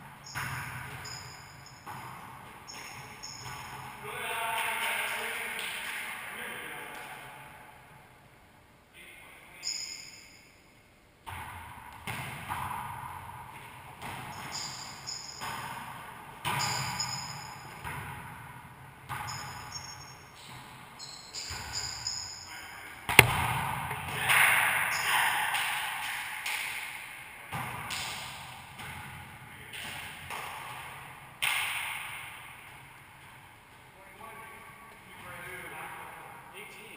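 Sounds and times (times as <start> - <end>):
ball thumps echoing off walls: 0.0 - 4.8, 11.2 - 20.9, 23.1 - 24.7, 27.5 - 33.8
sneakers squeaking on floor: 0.2 - 4.0, 9.6 - 10.5, 14.1 - 15.7, 16.4 - 18.0, 19.1 - 22.5.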